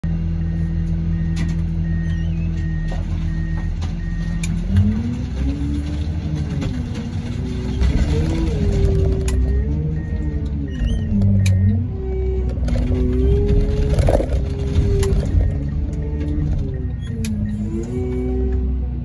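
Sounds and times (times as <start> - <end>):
car crusher engine and hydraulics: 0.2 - 19.0
car cracking under crusher: 12.7 - 15.7.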